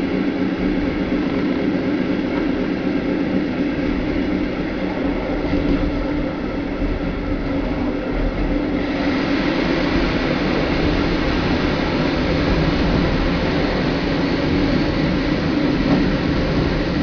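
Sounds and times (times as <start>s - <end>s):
train wheels rumbling on rail: 0.0s - 17.0s
running hiss: 8.8s - 17.0s.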